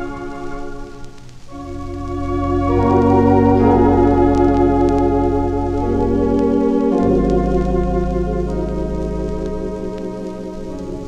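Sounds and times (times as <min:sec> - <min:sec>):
organ playing hymn chords: 0:00.0 - 0:11.0
vinyl record surface clicks: 0:00.9 - 0:11.0.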